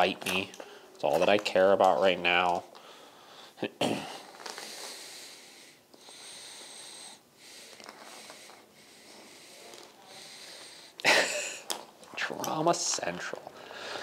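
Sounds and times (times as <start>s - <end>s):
dog breathing heavily: 5.0s - 11.0s.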